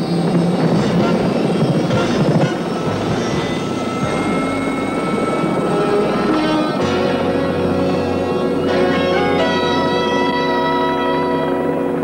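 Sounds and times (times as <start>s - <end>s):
helicopter rotor and engine: 0.0s - 9.9s.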